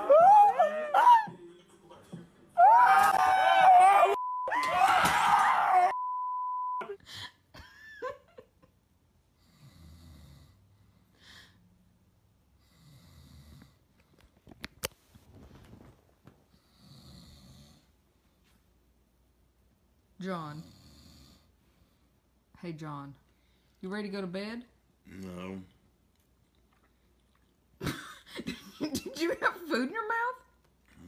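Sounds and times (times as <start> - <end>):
censor bleep: 4.2 - 4.6, 5.9 - 6.9
man snoring: 9.4 - 10.6.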